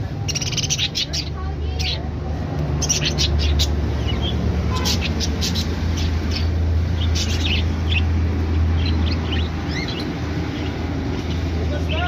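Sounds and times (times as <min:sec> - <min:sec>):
budgerigars chirping: 0:00.2 - 0:02.0, 0:02.7 - 0:12.0.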